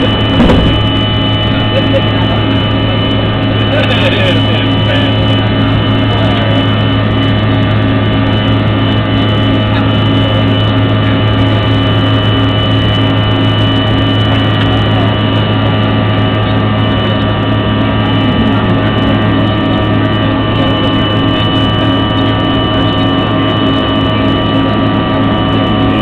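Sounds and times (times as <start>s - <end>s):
low hum: 0.0s - 4.0s
high steady whine: 0.0s - 26.0s
jet cabin drone: 0.0s - 26.0s.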